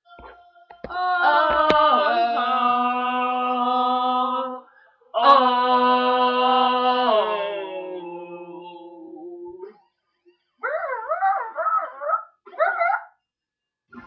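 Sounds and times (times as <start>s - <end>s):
women singing long notes: 0.1s - 9.7s.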